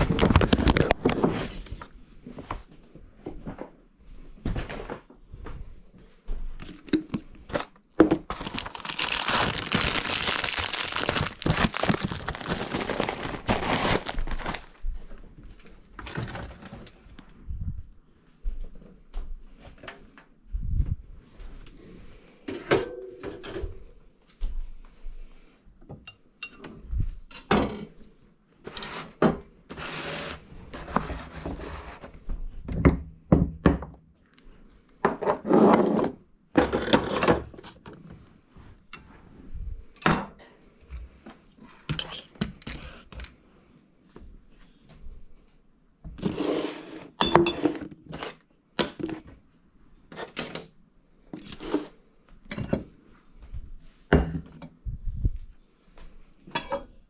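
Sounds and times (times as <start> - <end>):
scraping on counter: 29.7 - 32.1, 46.2 - 48.4.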